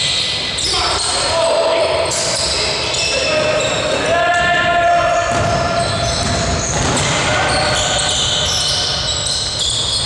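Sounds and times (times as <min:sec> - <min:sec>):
players' voices: 0:00.0 - 0:09.7
basketball dribbling on court: 0:05.3 - 0:08.8.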